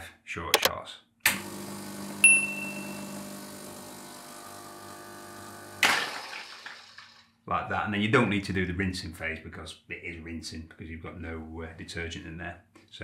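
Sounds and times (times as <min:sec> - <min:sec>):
pump humming: 0:01.4 - 0:05.8.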